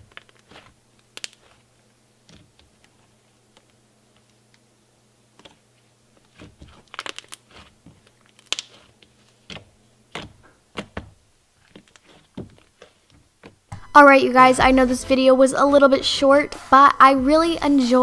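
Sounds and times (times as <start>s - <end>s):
slime squished by hand: 0.0s - 3.8s, 5.4s - 11.1s.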